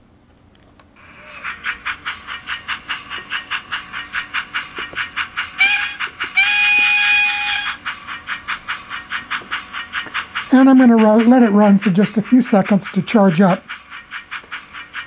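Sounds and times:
steam locomotive chuffing: 0:01.0 - 0:15.0
steam whistle: 0:05.6 - 0:07.9.

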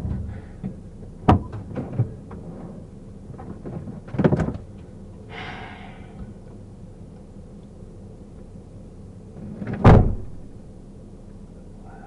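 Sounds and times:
car doors knocking and clunking: 0:00.0 - 0:02.2
low steady hum: 0:00.0 - 0:12.0.

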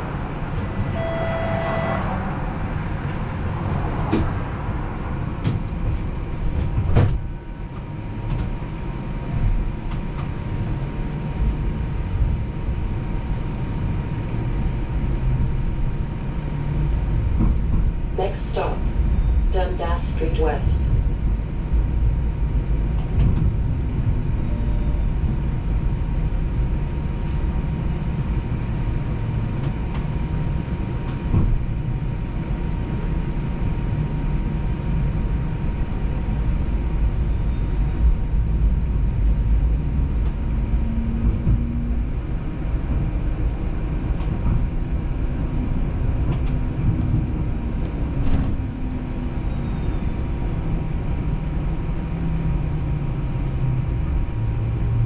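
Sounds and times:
streetcar rumbling on rails: 0:00.0 - 0:55.0
faint high tone: 0:00.6 - 0:02.2.

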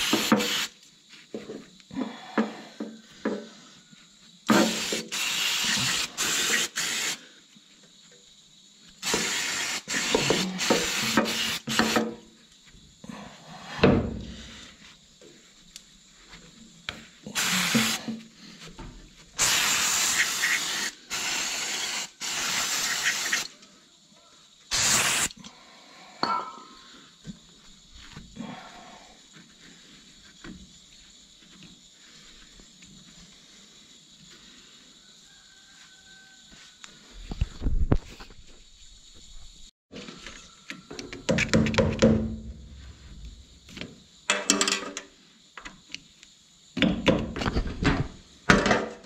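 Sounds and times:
hissing spray bursts: 0:00.0 - 0:00.8, 0:04.5 - 0:07.3, 0:09.0 - 0:12.2, 0:17.2 - 0:18.2, 0:19.4 - 0:23.5, 0:24.7 - 0:25.4.

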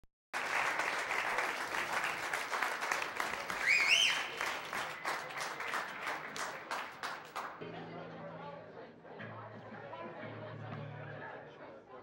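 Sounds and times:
audience applauding: 0:00.3 - 0:07.6
person whistling in crowd: 0:03.6 - 0:04.5.

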